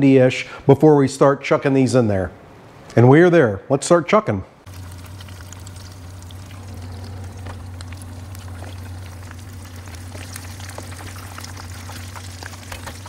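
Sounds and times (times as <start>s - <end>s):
low steady hum: 4.5s - 13.0s
oil sizzling and popping: 4.6s - 13.0s.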